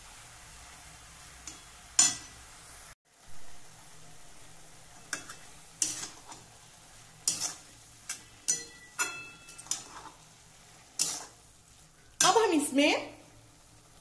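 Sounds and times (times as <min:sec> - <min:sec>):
faint steady sizzle: 0:00.0 - 0:14.0
metal spatula scraping steel pan: 0:04.9 - 0:06.6, 0:07.2 - 0:11.5.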